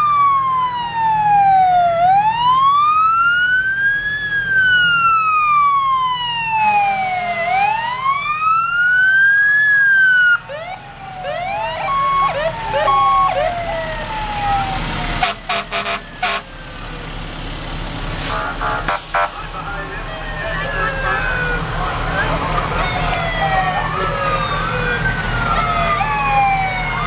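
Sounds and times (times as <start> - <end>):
fire truck sirens: 0.0 - 27.0
low engine rumble: 10.1 - 27.0.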